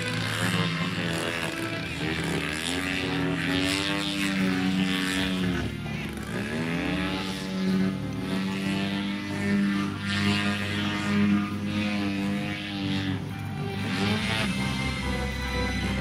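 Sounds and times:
propeller airplane engine: 0:00.0 - 0:16.0.

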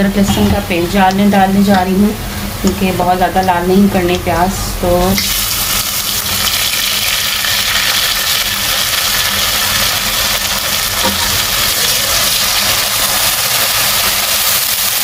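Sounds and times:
steady low hum: 0:00.0 - 0:14.2
onions sizzling in hot oil: 0:05.1 - 0:15.0.

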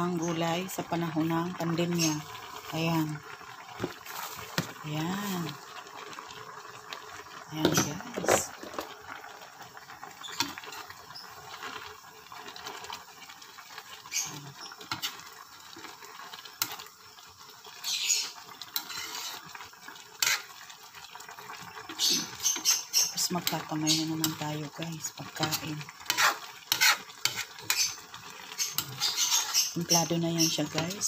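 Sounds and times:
coconut milk bubbling in a wok: 0:00.0 - 0:31.0
spatula scraping a metal pan: 0:14.6 - 0:15.2, 0:17.9 - 0:19.5, 0:20.2 - 0:20.6, 0:22.0 - 0:23.6, 0:25.4 - 0:29.9.

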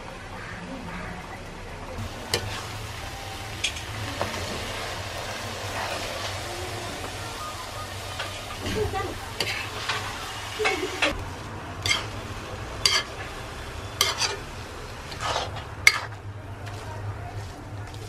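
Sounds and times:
filling sizzling: 0:02.0 - 0:16.1
metal spatula scraping pan: 0:11.8 - 0:12.2, 0:12.8 - 0:13.2, 0:13.9 - 0:14.5, 0:15.1 - 0:16.2.

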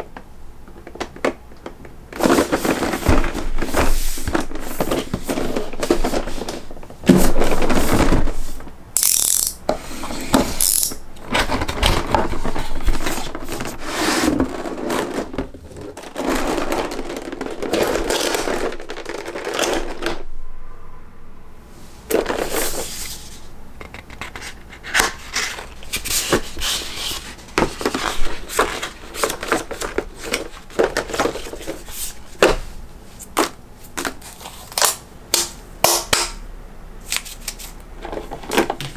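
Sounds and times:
plastic trays crinkling: 0:00.0 - 0:08.8, 0:11.2 - 0:20.3, 0:23.9 - 0:35.0.

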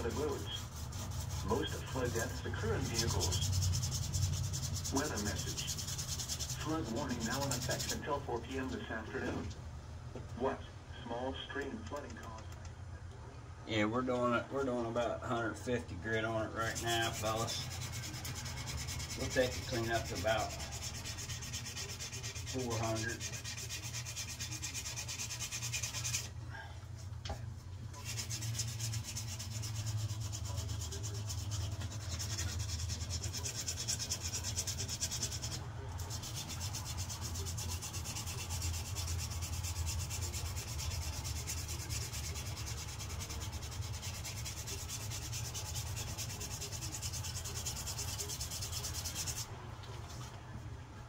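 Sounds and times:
sandpaper rubbing on metal: 0:00.0 - 0:08.2, 0:16.6 - 0:26.3, 0:27.9 - 0:49.5
steady low hum: 0:00.0 - 0:51.0.

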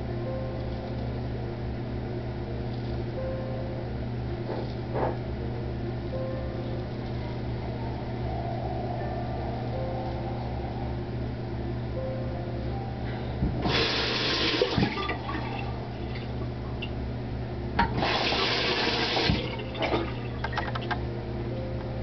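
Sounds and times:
steady low hum: 0:00.0 - 0:22.0
sink tap running: 0:13.6 - 0:16.4, 0:17.8 - 0:20.9.

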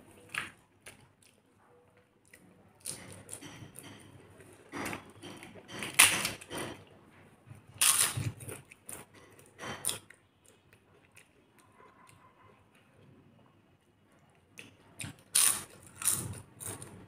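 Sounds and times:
crisp food crunching: 0:14.6 - 0:17.0.

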